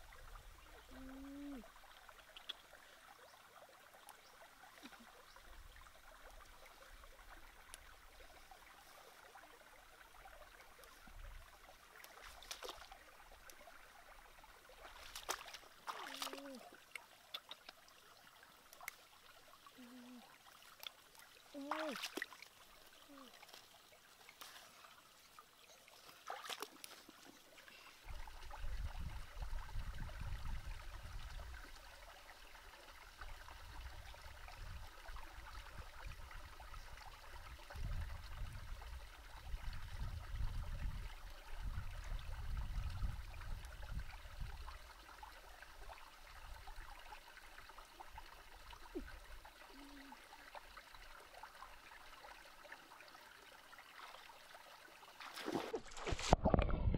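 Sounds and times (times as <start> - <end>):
water trickling: 0.0 - 56.7
stems rustling: 23.2 - 24.8.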